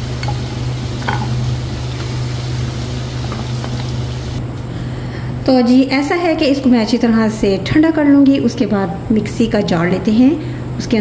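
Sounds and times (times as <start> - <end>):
oil sizzling in a wok: 0.0 - 4.4.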